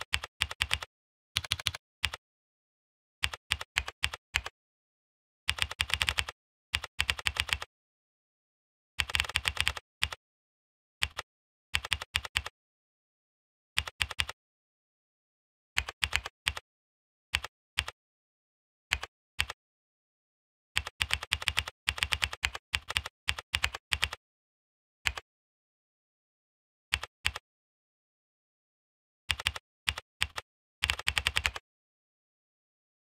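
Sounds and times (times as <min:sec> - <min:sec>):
computer keyboard typing: 0:00.1 - 0:02.2, 0:03.2 - 0:04.5, 0:05.5 - 0:07.7, 0:09.0 - 0:10.2, 0:11.0 - 0:11.2, 0:11.8 - 0:12.5, 0:13.8 - 0:14.4, 0:15.8 - 0:16.6, 0:18.9 - 0:19.6, 0:20.8 - 0:24.2, 0:29.3 - 0:31.6.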